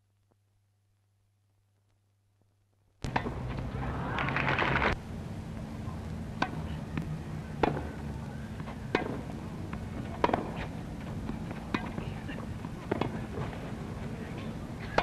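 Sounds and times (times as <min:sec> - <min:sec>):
low steady hum: 0:00.0 - 0:15.0
tennis ball knocks: 0:10.2 - 0:10.7, 0:12.8 - 0:13.6.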